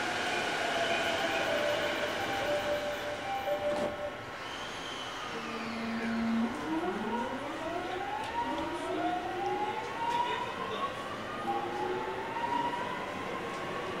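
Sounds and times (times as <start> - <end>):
train inverter whine climbing: 0.0 - 9.2
train running noise: 0.0 - 10.4.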